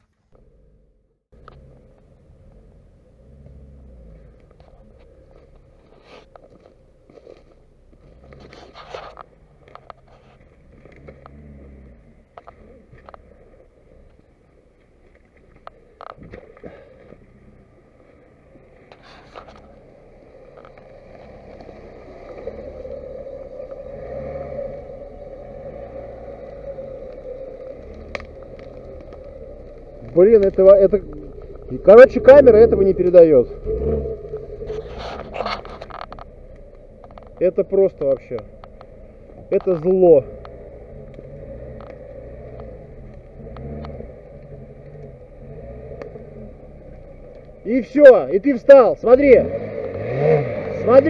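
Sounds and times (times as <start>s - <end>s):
engine revving under load: 0.4s - 5.8s, 8.0s - 14.0s, 16.2s - 51.0s
car churning through mud and water: 14.6s - 51.0s
faint clicks: 24.6s - 47.7s.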